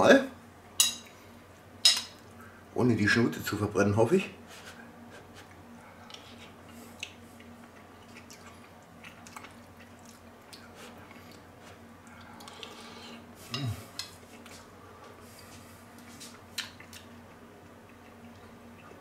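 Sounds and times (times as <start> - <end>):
soft chewing: 4.6 - 19.0
person humming: 13.5 - 14.0.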